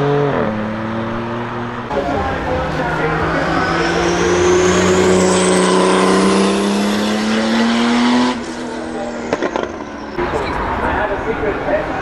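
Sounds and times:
race car engine accelerating: 0.0s - 11.7s
thin high whine: 1.9s - 7.0s.

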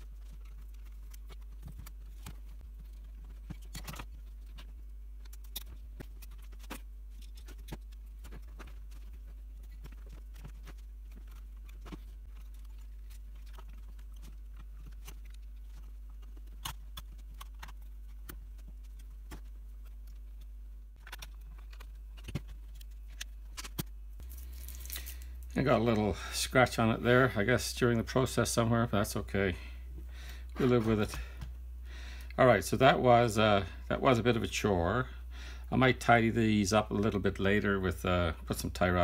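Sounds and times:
metal parts clicking and rattling: 0.0s - 20.2s, 21.0s - 25.2s
steady low hum: 0.0s - 39.0s.

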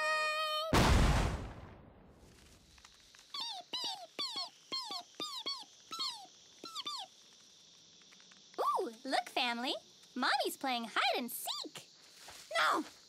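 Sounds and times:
crash: 0.8s - 2.7s
cartoon bird peeping: 3.4s - 7.1s.

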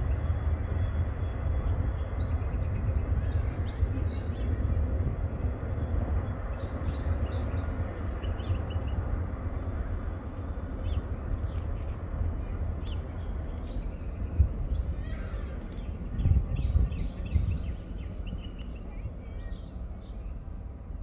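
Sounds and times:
low rumble: 0.0s - 21.0s
birds chirping: 10.4s - 20.6s.

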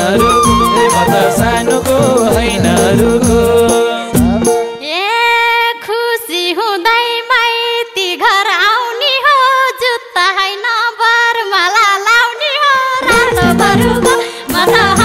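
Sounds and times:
ornamented folk melody: 0.0s - 4.9s.

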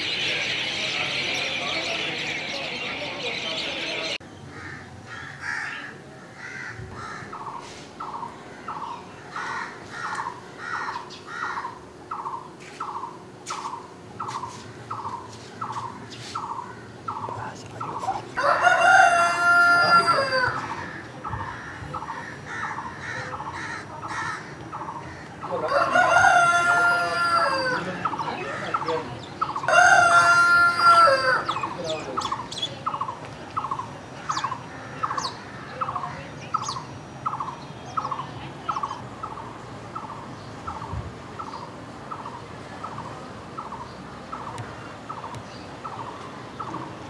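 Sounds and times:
roosters crowing: 0.0s - 11.9s, 17.9s - 33.0s.

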